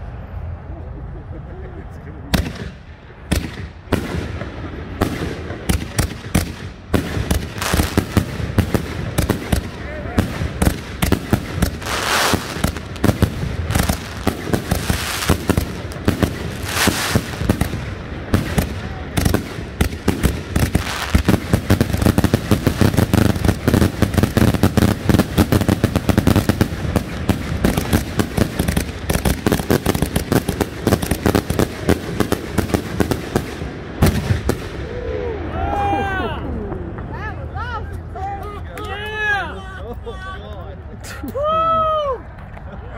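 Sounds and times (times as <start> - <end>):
fireworks firing bangs and crackles: 2.3 - 35.0.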